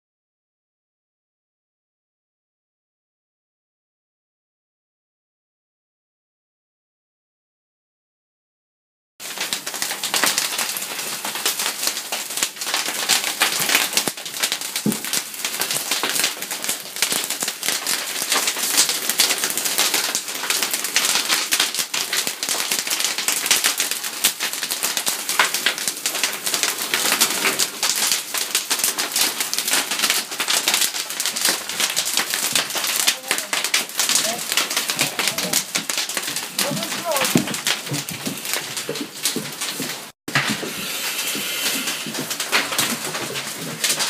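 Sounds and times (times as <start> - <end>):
fire crackling and popping: 9.2 - 44.0.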